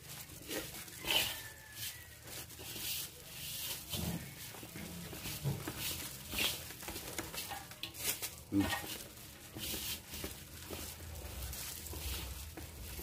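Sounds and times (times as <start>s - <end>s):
hand mixing wet dough in bowl: 0.0s - 13.0s.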